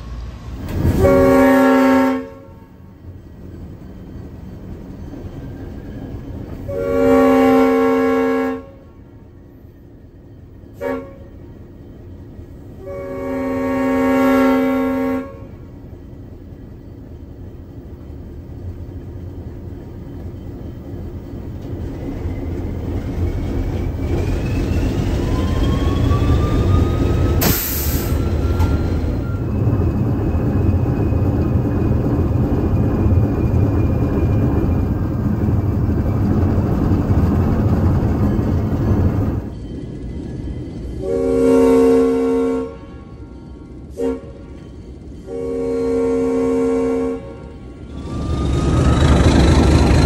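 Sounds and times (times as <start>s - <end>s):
diesel locomotive engine rumble: 0.0s - 50.0s
sharp hiss: 27.4s - 28.2s.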